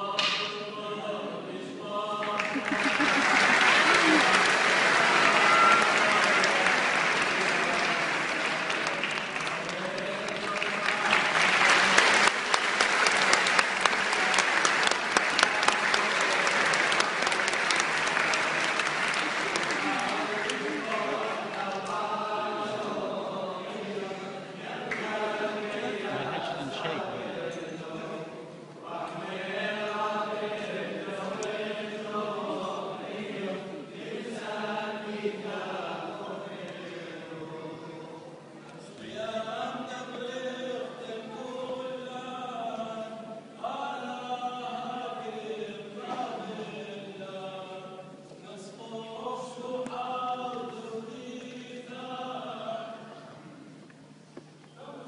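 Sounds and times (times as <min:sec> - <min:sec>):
group chanting a hymn: 0:00.0 - 0:53.6
crowd clapping: 0:02.2 - 0:22.0, 0:24.9 - 0:25.2.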